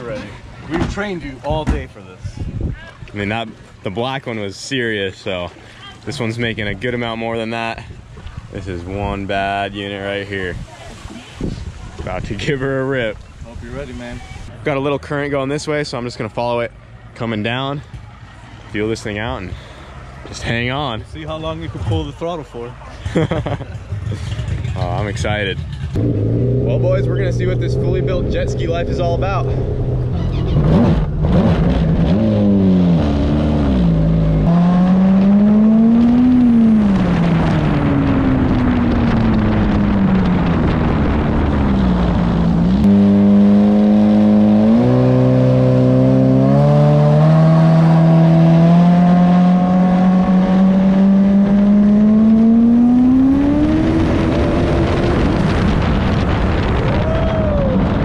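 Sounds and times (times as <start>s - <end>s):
wind and water rushing: 0.0s - 14.5s, 34.5s - 58.0s
jet ski engine at full throttle: 35.6s - 57.9s.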